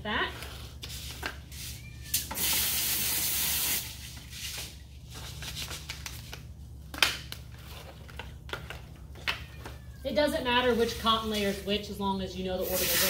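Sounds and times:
hose spray nozzle hissing: 0:02.3 - 0:03.9, 0:12.6 - 0:13.0.

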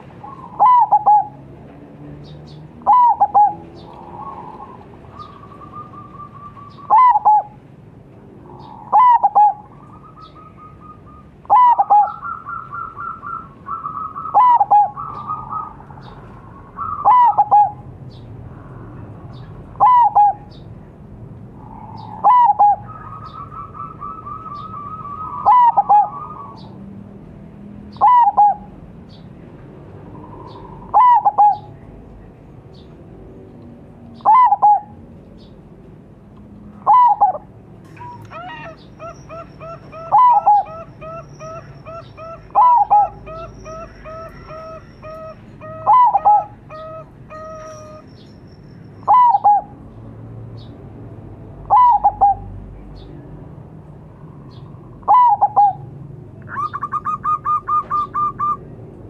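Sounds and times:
dove cooing: 0:00.2 - 0:01.4, 0:02.8 - 0:07.6, 0:08.5 - 0:17.9, 0:19.8 - 0:20.5, 0:21.6 - 0:26.7, 0:27.9 - 0:28.7, 0:30.1 - 0:31.7, 0:34.2 - 0:35.0, 0:36.8 - 0:48.0, 0:49.1 - 0:49.7, 0:51.7 - 0:52.5, 0:55.0 - 0:55.9, 0:56.5 - 0:58.7.

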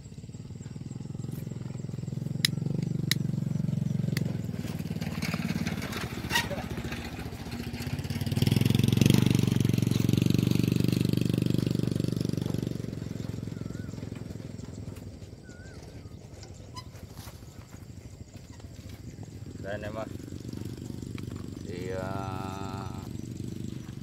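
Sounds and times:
small motorcycle engine running: 0:00.0 - 0:24.0
sharp clicks: 0:02.4 - 0:03.3.

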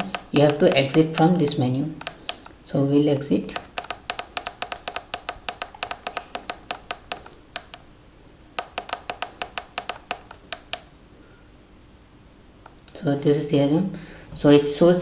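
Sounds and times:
push-button switches clicking: 0:00.0 - 0:02.6, 0:03.5 - 0:07.8, 0:08.6 - 0:10.9.

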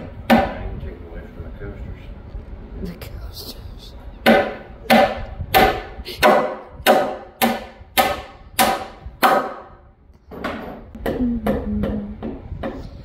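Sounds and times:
hammer hitting nail into wood: 0:04.2 - 0:09.7.

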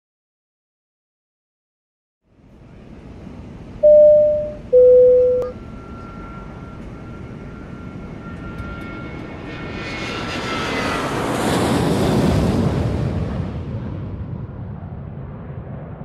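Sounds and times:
jet engine whine: 0:02.4 - 0:16.0
two-tone cabin chime: 0:03.8 - 0:05.6.

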